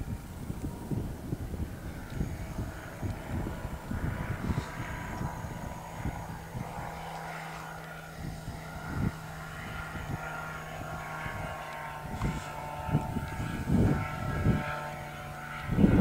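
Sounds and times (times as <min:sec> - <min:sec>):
ultralight plane engine droning: 0:00.0 - 0:16.0
wind thumps on microphone: 0:00.0 - 0:16.0.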